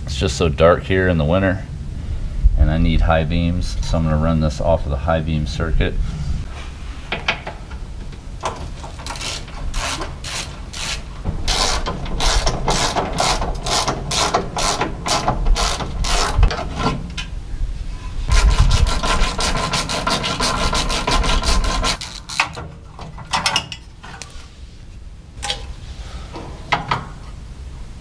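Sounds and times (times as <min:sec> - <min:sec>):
ratchet wrench clicking: 0:09.0 - 0:16.5, 0:18.3 - 0:22.6.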